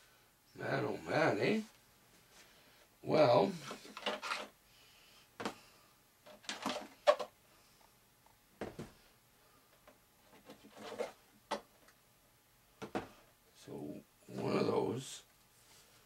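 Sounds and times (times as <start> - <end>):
hands knocking and rustling: 8.6 - 9.0, 12.8 - 13.2.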